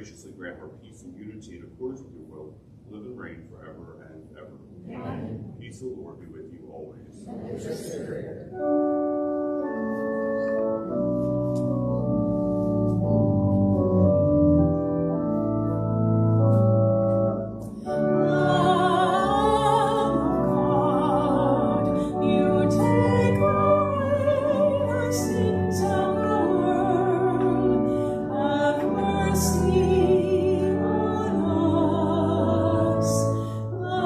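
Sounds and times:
church organ chords: 8.4s - 34.0s
woman singing with vibrato: 18.0s - 34.0s.

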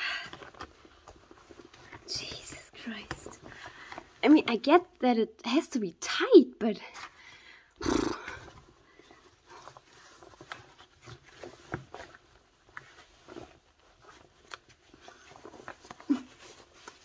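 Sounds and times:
dry suit fabric rustling: 0.3s - 2.2s, 8.5s - 17.0s.

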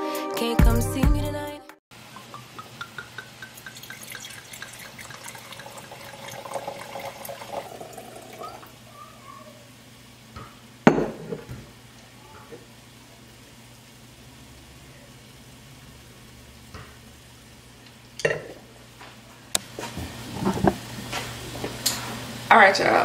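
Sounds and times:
wine glugging into a glass: 2.1s - 8.6s
bottle knocking on stone counter: 2.2s - 4.1s, 10.9s - 11.5s.

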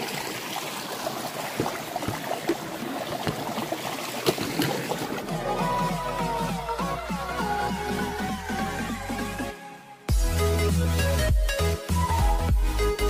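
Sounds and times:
stream water running over rocks: 0.0s - 5.5s
electronic music: 5.2s - 13.0s.

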